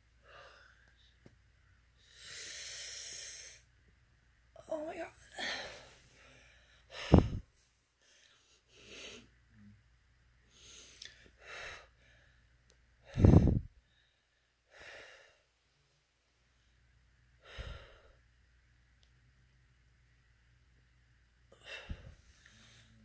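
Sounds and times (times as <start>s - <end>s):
person breathing hard: 0.2s - 1.2s, 2.0s - 3.7s, 5.3s - 9.3s, 10.5s - 15.5s, 17.4s - 18.2s, 21.5s - 23.0s.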